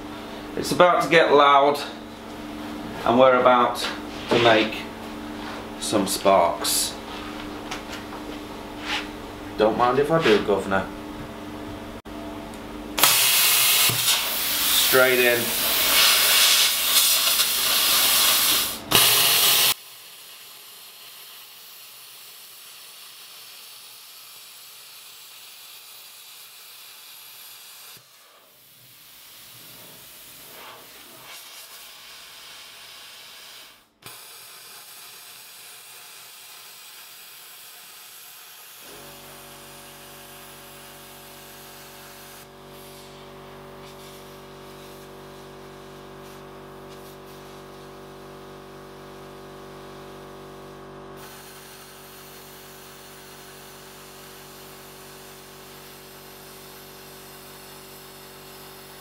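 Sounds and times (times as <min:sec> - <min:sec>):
steady hum: 0:00.0 - 0:19.8
plasma cutter hissing: 0:13.0 - 0:38.8, 0:39.8 - 0:47.7, 0:51.2 - 0:59.0.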